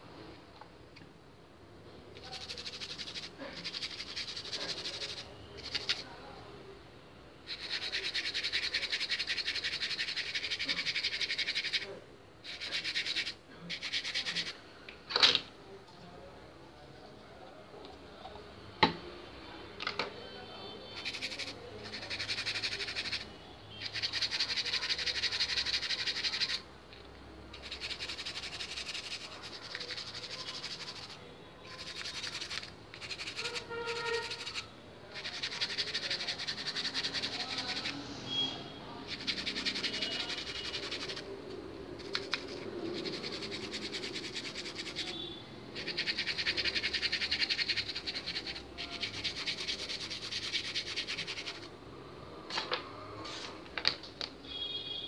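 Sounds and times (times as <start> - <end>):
brush scrubbing circuit board: 2.2 - 6.1, 7.5 - 14.6, 21.0 - 26.6, 27.6 - 38.1, 39.0 - 41.3, 42.0 - 51.7.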